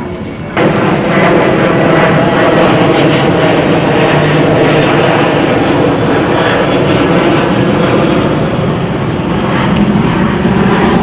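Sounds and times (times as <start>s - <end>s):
loud mechanical drone: 0.0s - 11.0s.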